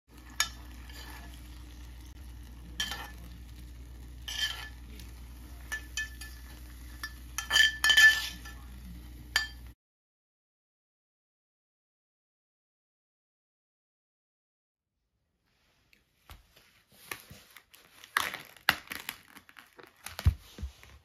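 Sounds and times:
metal spoon scraping a skillet: 0.1 - 9.7
oil sizzling: 0.1 - 9.8.

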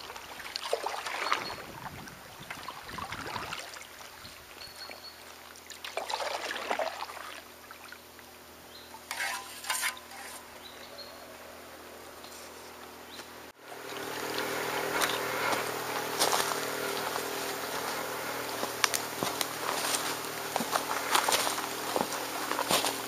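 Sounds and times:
paddle splashing in water: 0.0 - 4.1, 5.6 - 7.5.

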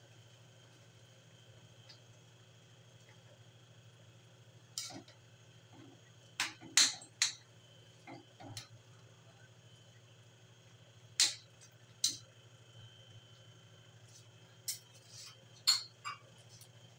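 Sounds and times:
spatula scraping a wok: 14.9 - 15.4.

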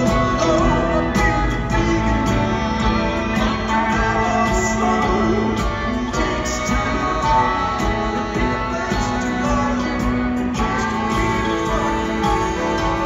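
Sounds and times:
electric guitars: 0.0 - 13.0
live rock band playing: 0.0 - 13.0.

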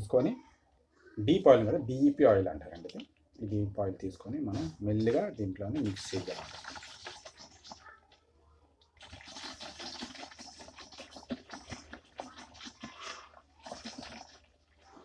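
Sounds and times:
plastic bottle crackling and rustling: 4.4 - 7.8, 9.0 - 14.8.

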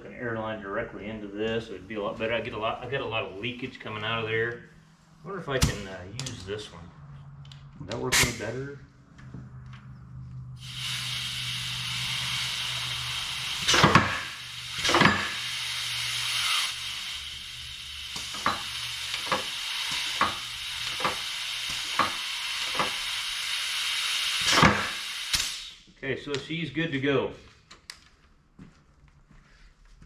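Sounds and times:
compressed air hissing: 10.6 - 25.9.

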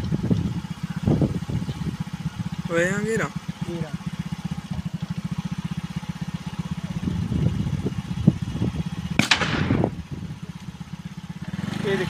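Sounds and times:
engine idling: 0.0 - 12.0
gunshot: 9.2 - 10.0.

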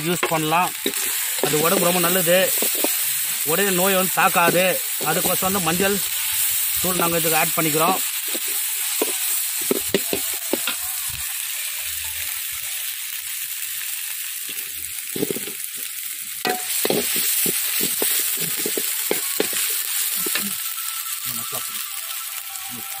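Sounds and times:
masala sizzling in oil: 0.0 - 23.0
steel spoon scraping pan: 0.2 - 3.5, 16.5 - 20.5.

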